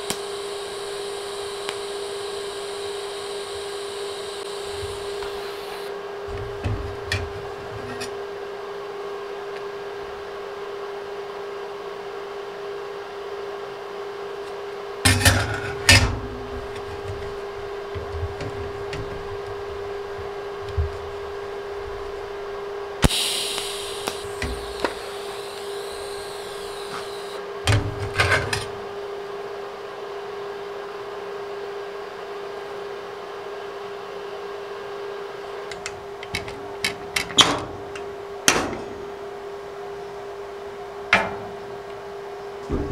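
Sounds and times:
welding arc snap and hiss: 0.0s - 7.7s, 15.1s - 27.4s
steady hum: 0.0s - 10.3s, 14.7s - 29.1s.

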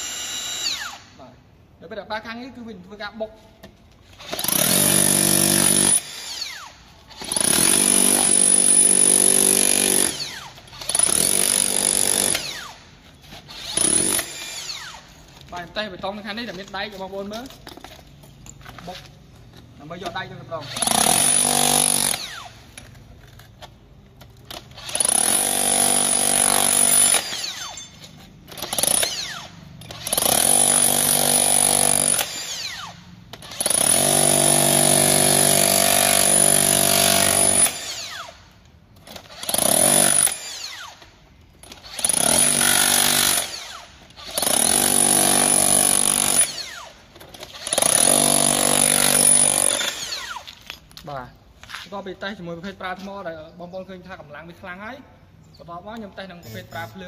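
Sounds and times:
rotary hammer chiselling concrete: 4.2s - 12.8s, 13.6s - 15.0s, 20.7s - 22.5s, 24.6s - 27.9s, 28.5s - 38.3s, 39.2s - 40.8s, 41.7s - 50.5s.

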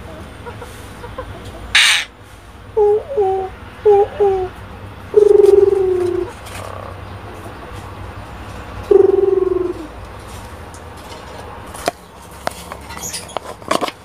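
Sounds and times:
starling call: 1.8s - 2.2s, 2.8s - 7.0s, 8.9s - 10.0s.

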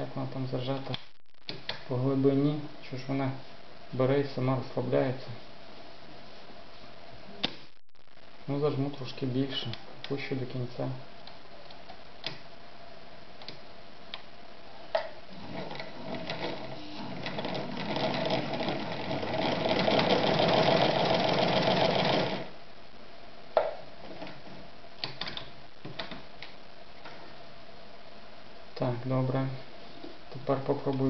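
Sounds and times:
electric sewing machine stitching: 15.3s - 22.5s.

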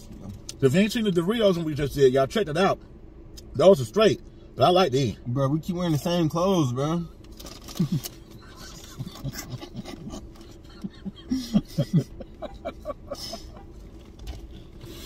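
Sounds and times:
men laughing quietly: 7.7s - 13.9s.

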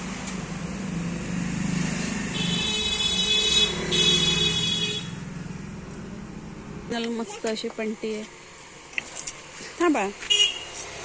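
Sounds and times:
motor vehicle running: 0.0s - 8.3s.

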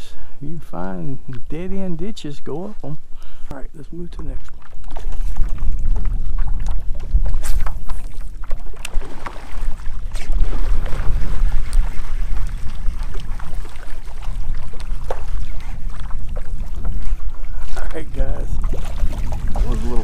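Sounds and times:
wind buffeting microphone: 0.6s - 20.0s
water sloshing around paddleboard: 2.5s - 20.0s.

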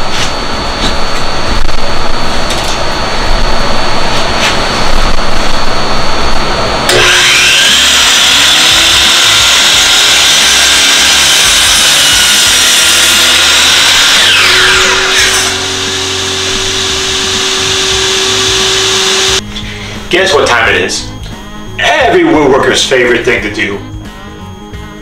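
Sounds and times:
dust vacuum humming: 0.0s - 22.5s
miter saw cutting wood: 6.9s - 19.4s.

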